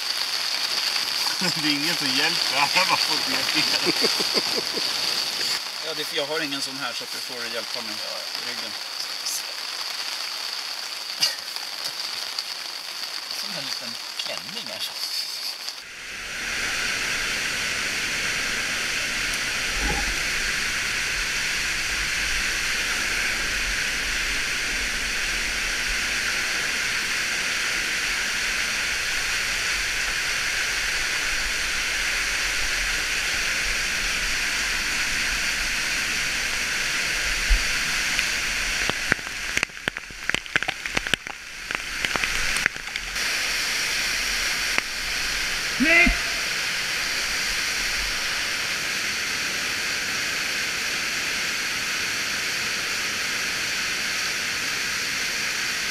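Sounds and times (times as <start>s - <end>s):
water pouring over rock: 0.0s - 14.7s, 19.2s - 48.6s.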